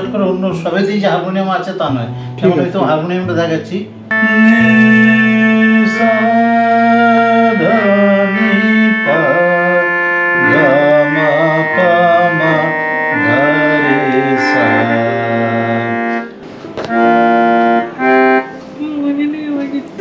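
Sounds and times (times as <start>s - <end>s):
keyboard harmonium melody: 0.0s - 20.0s
held low drone note: 4.1s - 16.3s.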